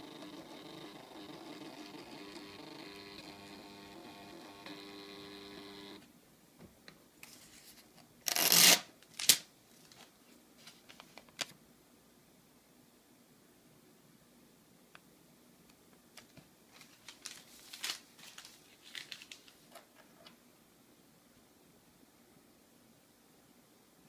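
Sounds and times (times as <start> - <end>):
receipt printer whirring: 0.0 - 6.0
paper rustling: 7.2 - 8.0, 9.0 - 11.6, 16.2 - 20.4
paper receipt tearing: 8.3 - 9.5.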